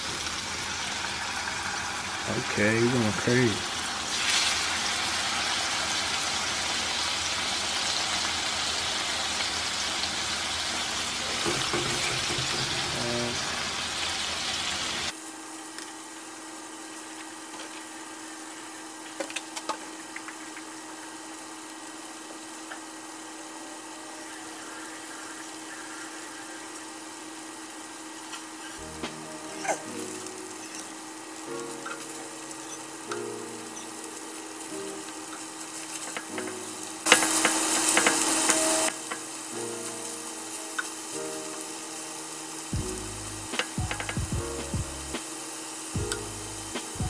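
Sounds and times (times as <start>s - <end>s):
chicken sizzling in frying pan: 0.0s - 47.0s
steady hum: 20.4s - 47.0s.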